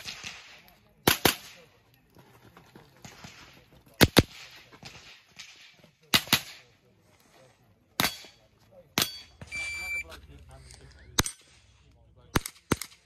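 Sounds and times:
electronic timer beep: 9.4s - 10.1s.

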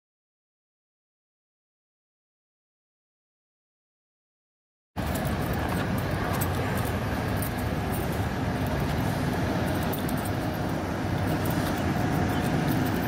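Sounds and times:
faint steady tones: 5.0s - 13.0s
traffic rumble: 5.0s - 13.0s.

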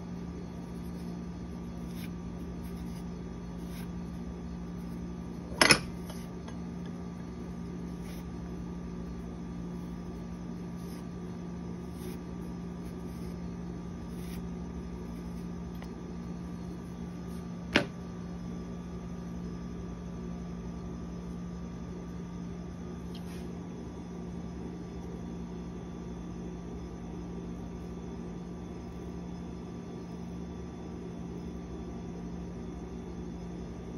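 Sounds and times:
low mechanical hum: 0.0s - 33.9s.

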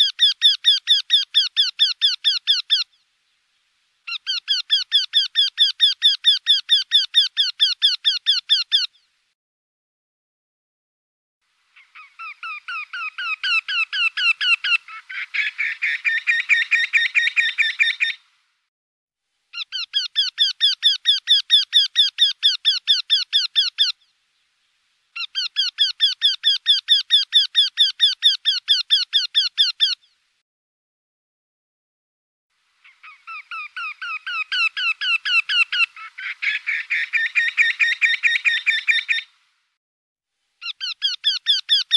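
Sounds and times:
bird calling nasal notes: 4.0s - 9.1s, 19.5s - 24.2s, 25.1s - 30.2s, 32.8s - 39.4s, 40.6s - 41.9s.

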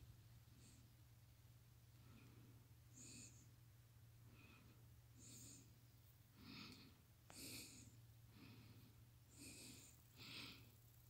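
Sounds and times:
faint breathing: 0.4s - 1.1s, 1.8s - 11.0s.

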